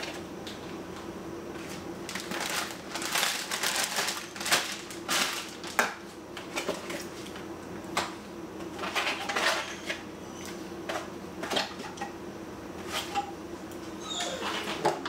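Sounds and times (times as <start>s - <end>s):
plastic bags crinkling: 2.0s - 5.9s.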